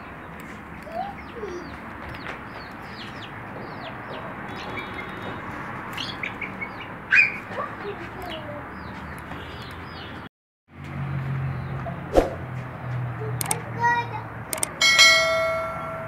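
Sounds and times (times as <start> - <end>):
chicks cheeping: 0.2 - 10.2.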